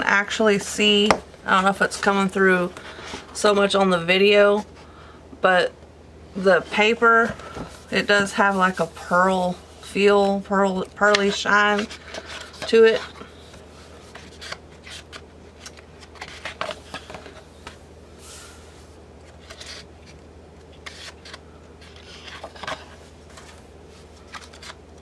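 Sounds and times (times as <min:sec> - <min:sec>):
paper pages rustling: 0:14.0 - 0:17.8, 0:19.2 - 0:25.0.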